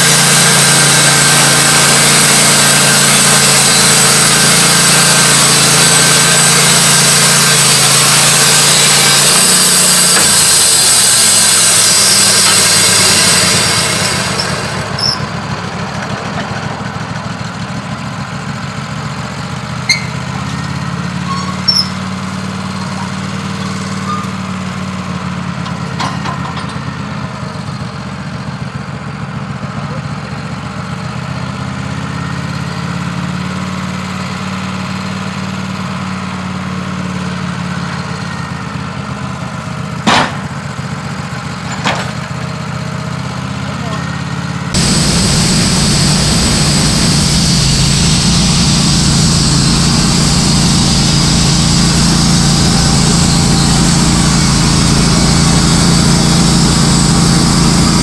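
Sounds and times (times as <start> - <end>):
band saw blade cutting hiss: 0.0 - 15.2, 44.8 - 58.0
engine idling: 0.0 - 20.9, 44.7 - 58.0.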